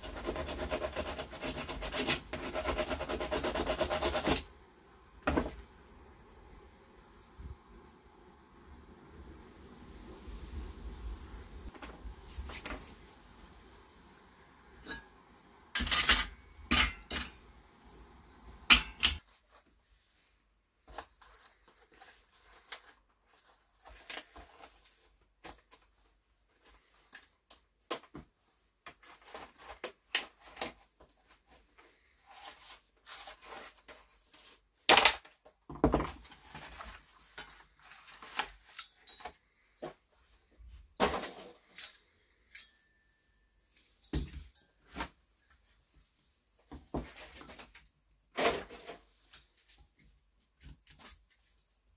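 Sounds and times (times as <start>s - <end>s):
metal parts clinking and clattering: 15.8s - 17.3s.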